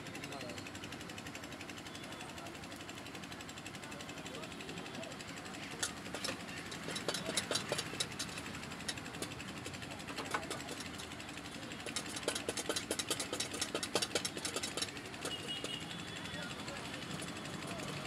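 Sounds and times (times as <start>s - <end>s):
wooden press clicks and taps: 5.8s - 11.0s.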